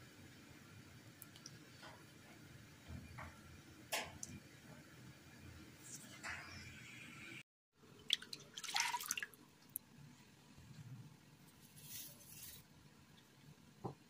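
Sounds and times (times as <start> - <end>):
milk pouring and splashing: 8.0 - 9.4.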